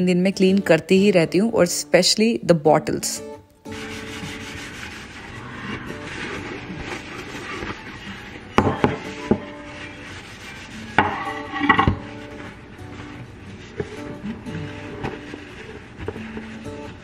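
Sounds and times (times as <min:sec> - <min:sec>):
paper towel rubbing wooden board: 0:03.7 - 0:17.0.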